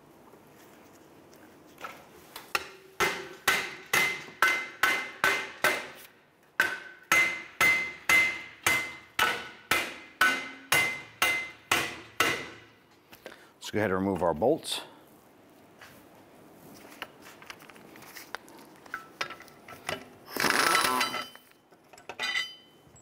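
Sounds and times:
hammer striking metal bolts: 2.5s - 6.0s, 6.6s - 12.7s.

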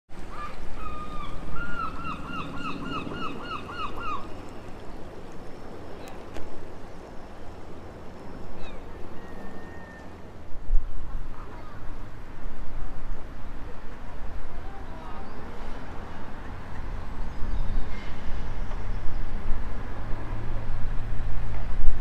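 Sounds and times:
gull calling: 0.3s - 4.4s.

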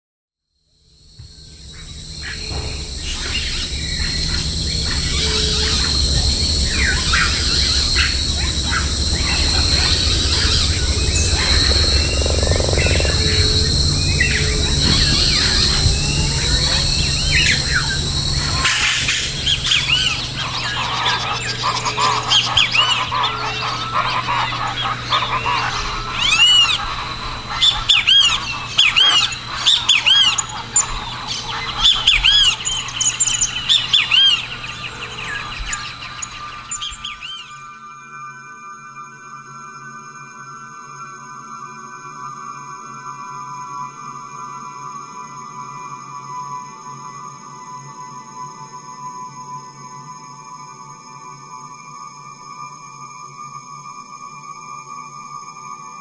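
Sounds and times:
birds calling: 1.2s - 37.6s
steady high drone: 1.2s - 37.8s
low rumble: 1.3s - 37.0s
short chirping bird calls: 19.0s - 37.6s.

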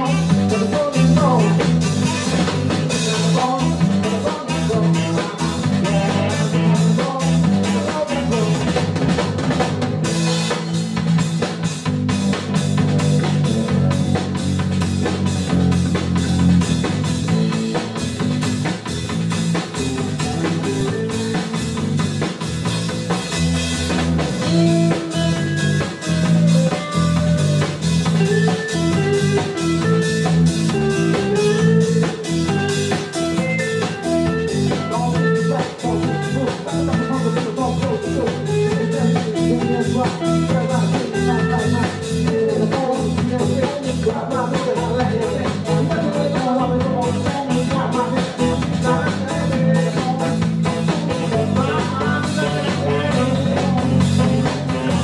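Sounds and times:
melodic lead line: 0.0s - 43.2s
drum kit beat: 0.0s - 55.0s
electric bass: 0.0s - 55.0s
electric guitar: 0.0s - 55.0s.

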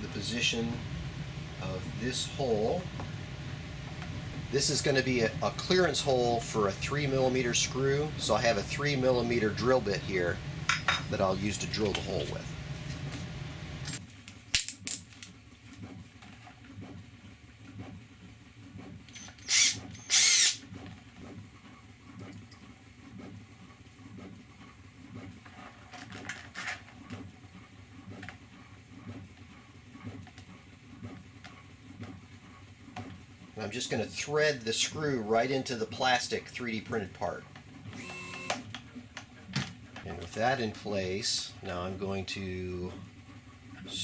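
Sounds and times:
cordless drill running: 19.1s - 20.6s, 37.9s - 38.6s.

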